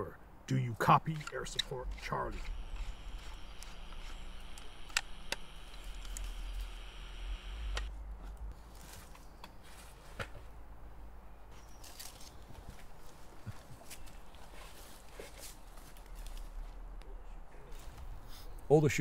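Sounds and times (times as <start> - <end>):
low steady rumble: 0.2 - 8.9.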